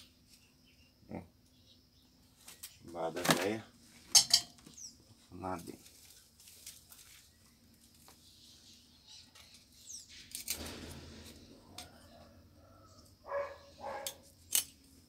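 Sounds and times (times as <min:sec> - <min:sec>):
net rustling: 0:05.6 - 0:08.1.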